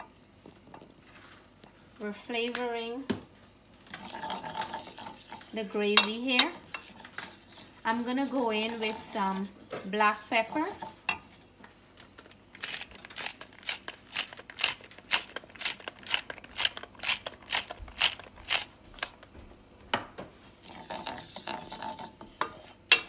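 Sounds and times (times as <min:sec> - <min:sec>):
wooden spoon scraping steel pan: 0:03.9 - 0:11.4, 0:20.6 - 0:23.0.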